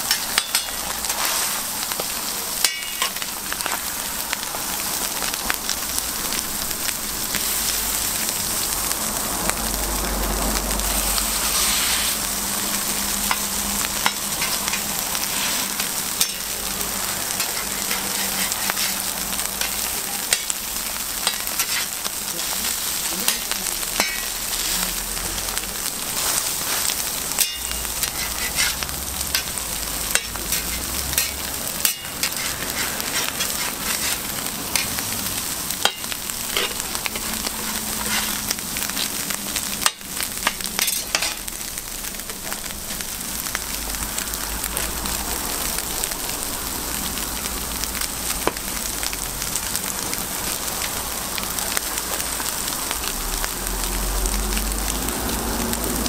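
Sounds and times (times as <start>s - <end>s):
food sizzling on a griddle: 0.0s - 56.0s
metal spatula scraping griddle: 0.1s - 2.0s, 11.4s - 12.2s, 12.8s - 16.5s, 17.3s - 20.5s, 21.2s - 22.5s, 23.3s - 24.7s, 26.2s - 35.0s, 35.8s - 38.5s, 39.8s - 41.4s.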